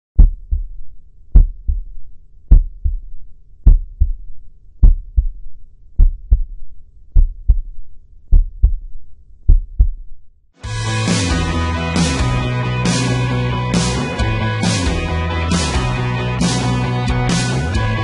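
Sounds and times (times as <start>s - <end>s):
heartbeat thumps: 0.2s - 4.2s, 4.8s - 6.6s, 7.2s - 10.2s
rock music with guitar: 10.6s - 18.0s.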